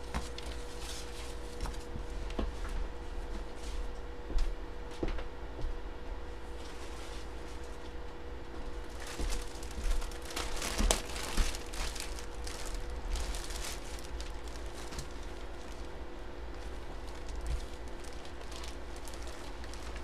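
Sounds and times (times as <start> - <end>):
plastic packaging crinkling: 8.7 - 20.0.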